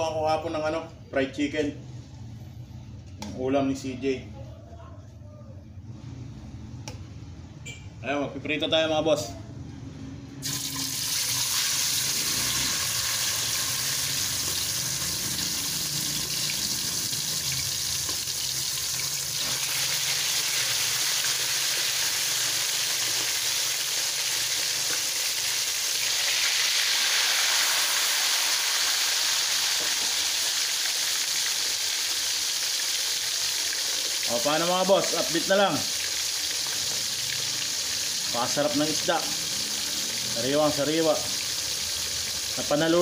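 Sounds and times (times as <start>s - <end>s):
fish sizzling in hot oil: 10.4s - 43.0s.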